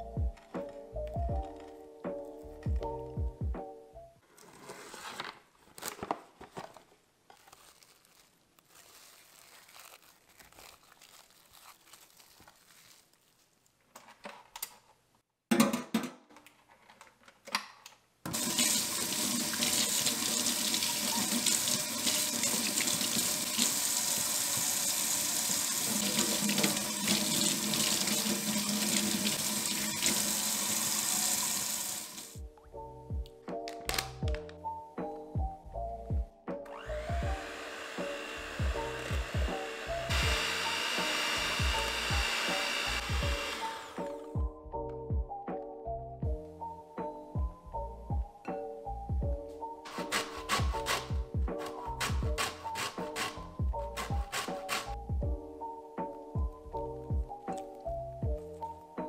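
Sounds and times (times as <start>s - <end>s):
faucet running into sink: 18.3s - 32.4s.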